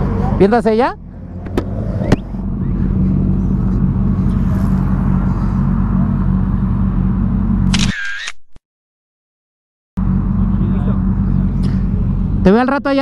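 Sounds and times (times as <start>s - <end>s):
motorcycle engine idling: 2.4s - 7.6s, 10.0s - 12.6s.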